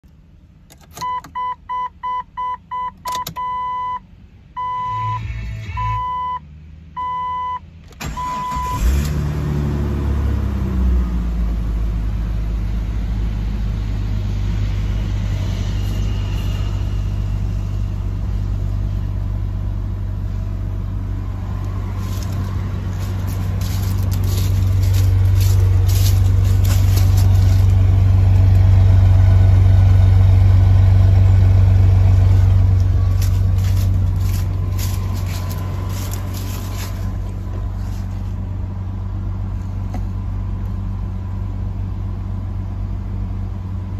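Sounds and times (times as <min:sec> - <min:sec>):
car engine cranking and starting: 0:00.1 - 0:04.0, 0:04.6 - 0:43.9
dashboard warning chime beeping: 0:00.9 - 0:08.8
car engine fast idle: 0:08.0 - 0:15.0.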